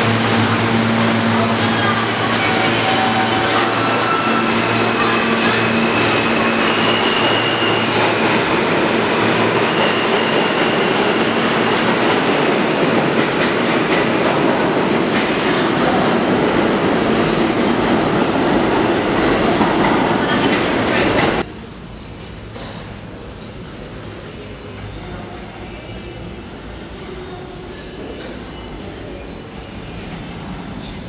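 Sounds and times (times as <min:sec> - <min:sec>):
train wheels rumbling on rail: 0:00.0 - 0:21.5.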